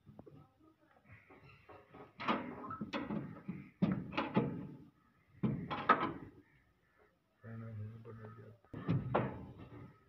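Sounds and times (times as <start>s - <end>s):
metal clanks and knocks: 1.7s - 4.8s.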